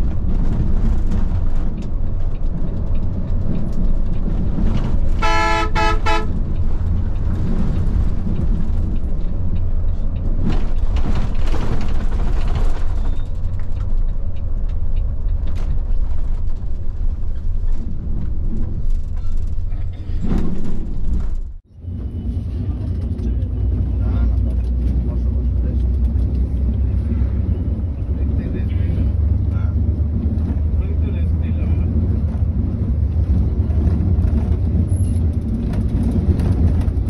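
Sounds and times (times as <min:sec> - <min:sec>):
bus engine and road rumble: 0:00.0 - 0:37.0
traffic noise: 0:00.0 - 0:37.0
vehicle horn toots: 0:05.2 - 0:06.4.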